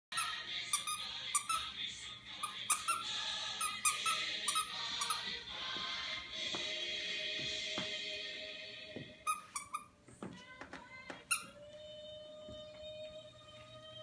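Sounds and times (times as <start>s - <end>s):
dog toy squeaking: 2.4s - 5.2s, 9.2s - 10.0s, 11.2s - 11.6s.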